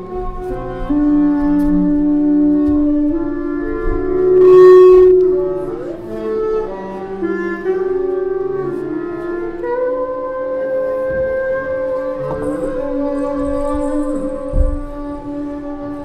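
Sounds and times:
double bass held notes: 0.0s - 16.0s
long held sliding tones: 0.0s - 16.0s.

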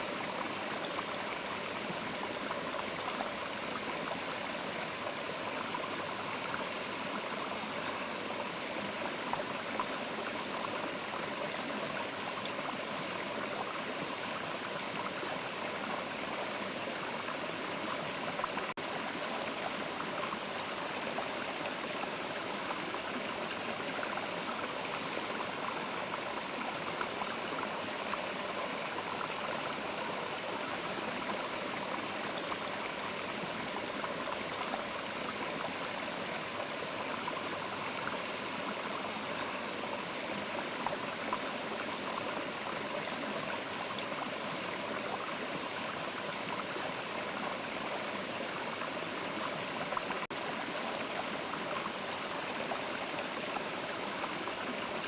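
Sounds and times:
river water rushing: 38.6s - 55.0s.

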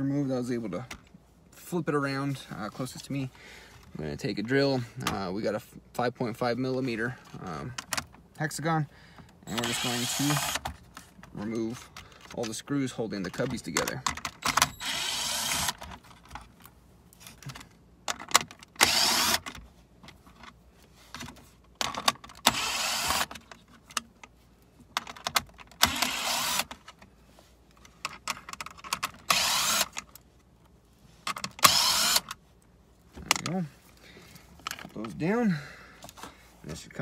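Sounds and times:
cordless drill running: 9.5s - 10.6s, 14.6s - 15.8s, 18.8s - 19.4s, 22.5s - 23.3s, 25.9s - 26.7s, 29.3s - 29.9s, 31.6s - 32.3s.

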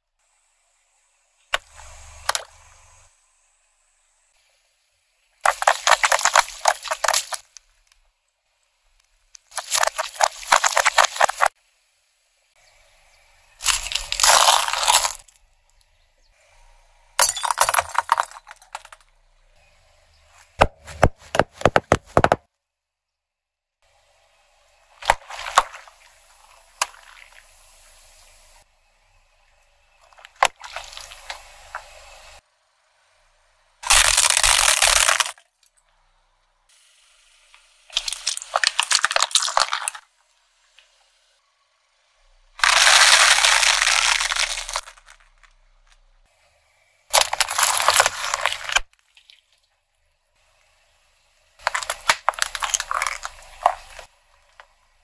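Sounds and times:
ceramic cracking under car tyre: 5.4s - 7.9s, 9.4s - 11.5s, 13.6s - 15.4s, 17.2s - 19.1s, 33.8s - 35.7s, 37.9s - 40.0s, 42.6s - 46.0s, 47.1s - 49.3s, 51.6s - 54.7s
metal cans crushed under tyre: 17.2s - 19.0s, 42.6s - 45.5s, 51.6s - 54.1s.

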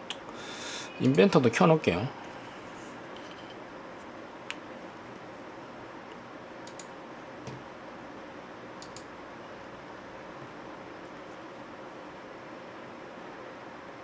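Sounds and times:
low hiss of room noise: 0.0s - 14.0s
computer mouse clicks: 6.6s - 6.9s, 8.8s - 9.1s.

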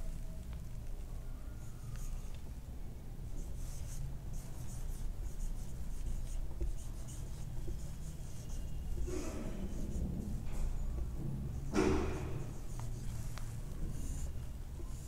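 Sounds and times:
marker squeaking on whiteboard: 3.4s - 15.0s.

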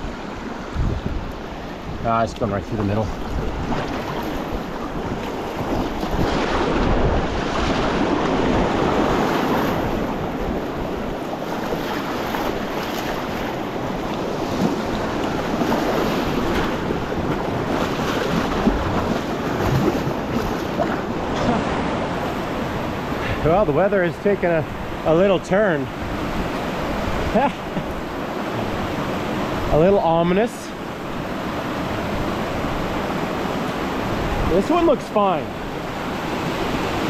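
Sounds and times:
wind buffeting microphone: 0.0s - 29.9s
rushing whitewater: 0.0s - 37.0s
paddle splashes: 2.7s - 25.3s.

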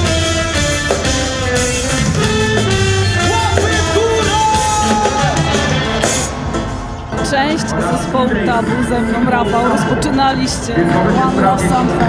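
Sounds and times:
live reggae band playing: 0.0s - 12.0s.

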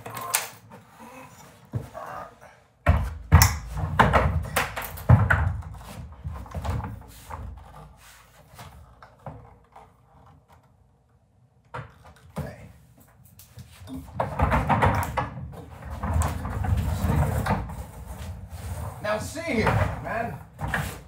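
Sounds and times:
wooden knocks and thumps: 2.8s - 8.0s, 13.9s - 18.4s.

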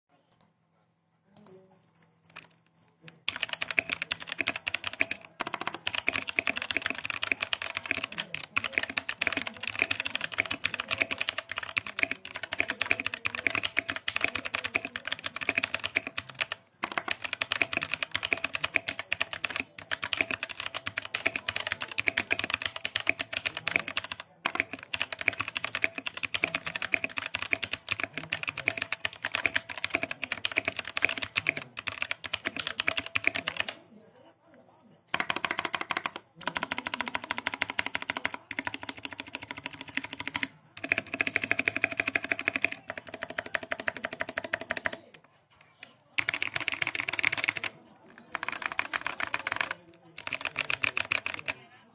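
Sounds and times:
fast typing on mechanical keyboard: 2.3s - 34.0s, 35.1s - 51.9s.

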